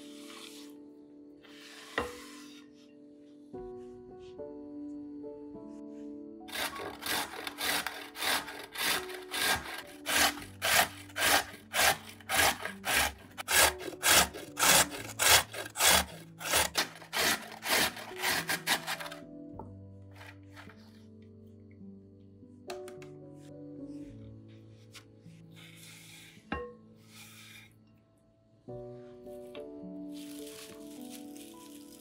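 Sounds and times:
carrot scraping on grater: 6.5s - 19.2s, 27.1s - 27.7s.

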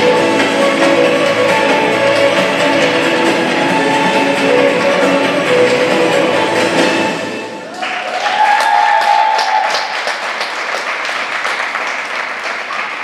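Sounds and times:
skating programme music: 0.0s - 7.8s
drawn-out cheer: 7.6s - 10.1s
audience applause: 7.6s - 13.0s.

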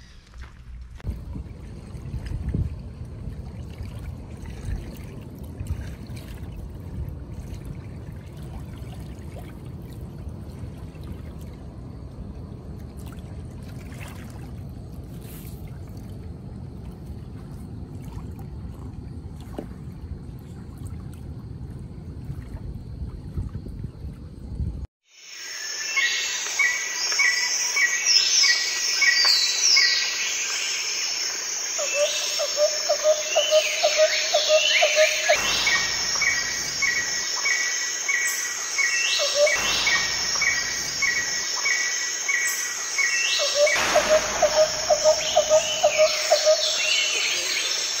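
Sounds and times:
steady high hiss: 25.1s - 48.0s
birds chirping: 31.8s - 48.0s
low fast bird trill: 43.4s - 47.2s
high downward sliding bird notes: 43.4s - 47.7s.

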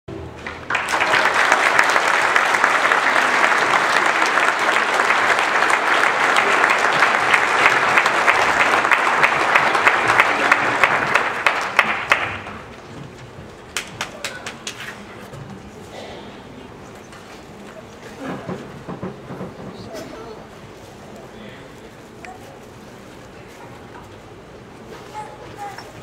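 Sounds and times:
audience applauding: 0.3s - 15.1s.

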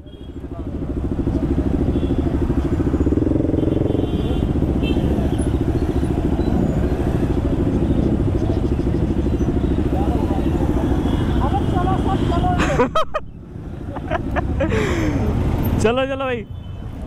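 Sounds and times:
motorcycle engine idling: 0.0s - 12.2s.

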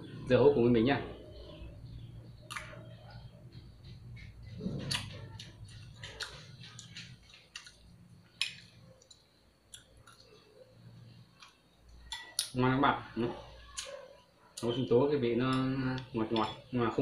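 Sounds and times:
chewing: 4.2s - 10.6s.

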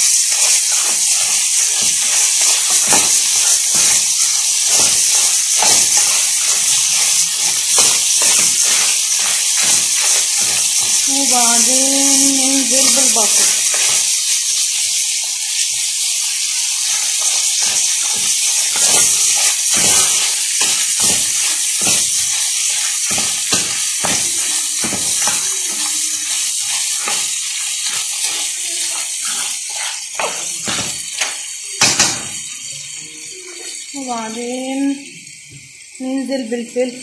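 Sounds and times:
shells and utensil clattering on pan: 0.0s - 35.8s
crayfish and onion sizzling in oil: 0.0s - 37.0s
loud knocks on pan: 31.8s - 32.4s.

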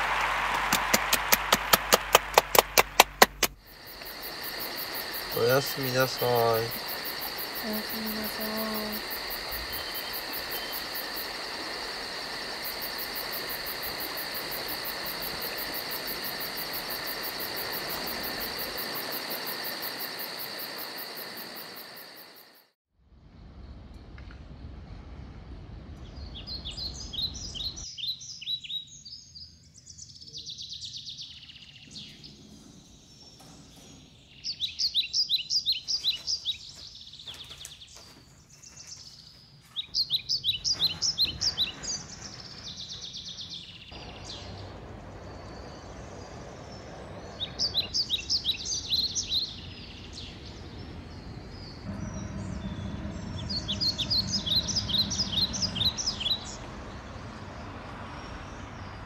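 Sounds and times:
songbird singing: 0.5s - 22.4s, 25.9s - 59.0s
low background rumble: 43.8s - 59.0s.

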